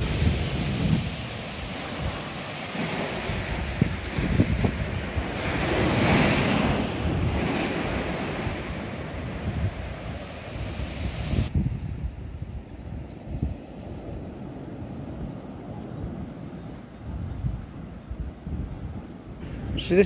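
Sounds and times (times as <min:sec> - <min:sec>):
sea waves breaking on beach: 0:00.0 - 0:11.5
wind buffeting microphone: 0:00.0 - 0:20.0.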